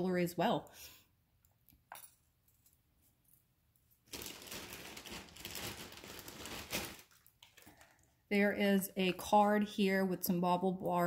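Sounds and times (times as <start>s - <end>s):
packaging rustling and crinkling: 4.0s - 8.1s.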